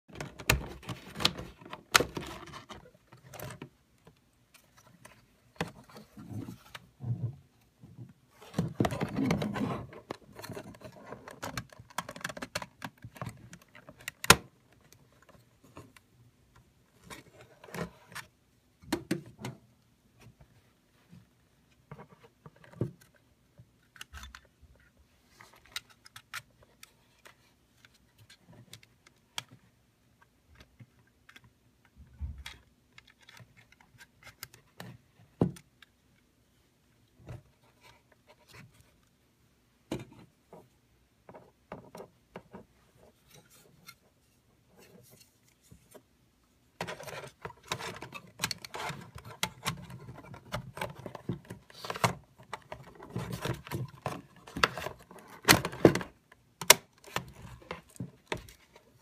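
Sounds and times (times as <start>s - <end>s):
plastic scraping and rattling: 0.1s - 7.4s, 8.4s - 16.0s, 46.8s - 59.0s.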